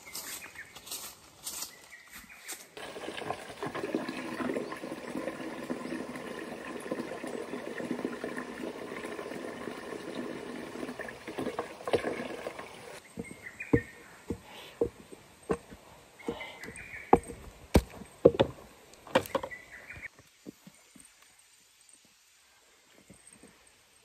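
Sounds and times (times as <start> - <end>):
tap water splashing into bucket: 2.8 - 13.0.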